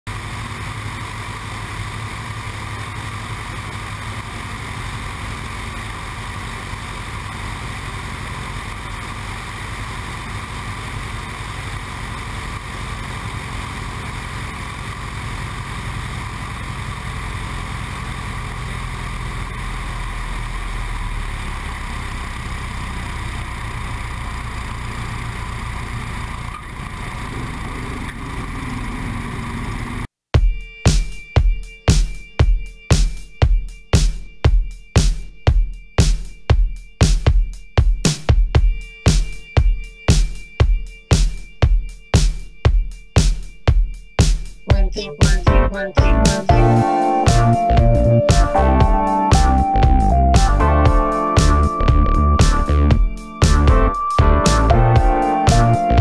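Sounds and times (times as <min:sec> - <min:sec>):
light aircraft propeller engine: 0:00.1 - 0:30.1.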